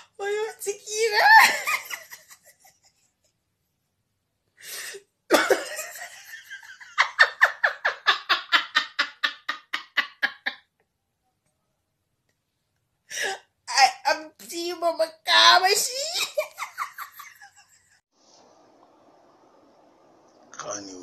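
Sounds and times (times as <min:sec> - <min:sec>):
woman laughing hard: 0:05.3 - 0:10.6, 0:16.0 - 0:17.7.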